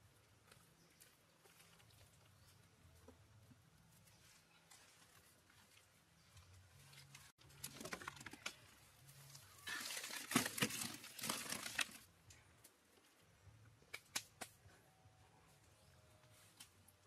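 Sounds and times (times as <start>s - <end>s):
rustling and crinkling: 0.4s - 13.3s.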